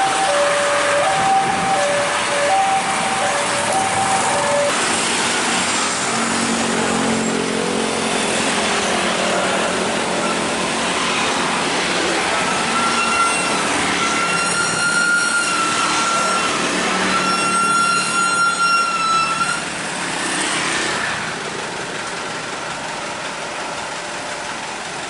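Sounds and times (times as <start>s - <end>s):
high-pitched tone: 0.0s - 4.8s
heavy trucks passing: 0.0s - 25.0s.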